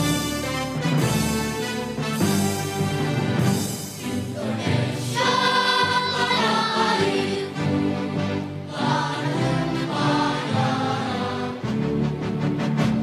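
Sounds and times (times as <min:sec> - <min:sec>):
instrumental accompaniment: 0:00.0 - 0:13.0
children's choir singing: 0:04.0 - 0:12.1.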